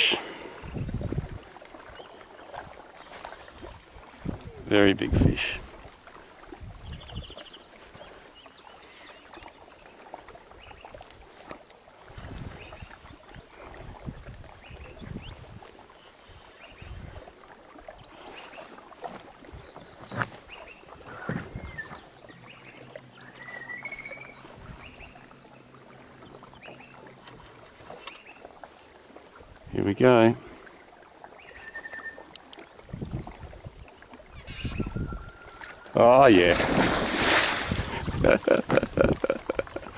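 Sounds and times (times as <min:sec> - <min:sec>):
water lapping against boat hull: 0:00.0 - 0:39.9.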